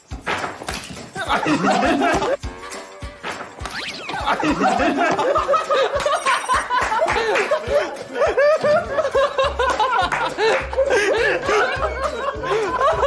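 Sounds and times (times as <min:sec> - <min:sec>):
young men laughing loudly: 0:01.1 - 0:02.4, 0:04.1 - 0:13.0.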